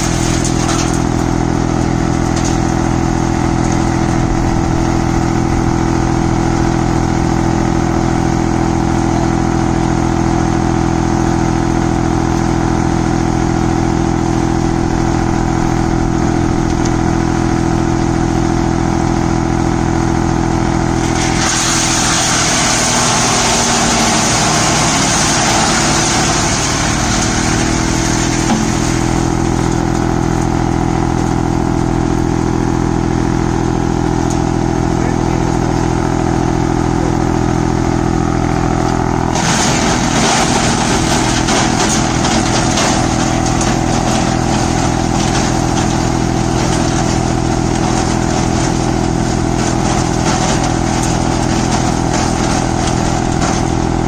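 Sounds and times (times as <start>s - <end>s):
branches being shredded: 0.0s - 7.2s, 21.0s - 30.6s, 39.3s - 54.0s
wood chipper engine running: 0.0s - 54.0s.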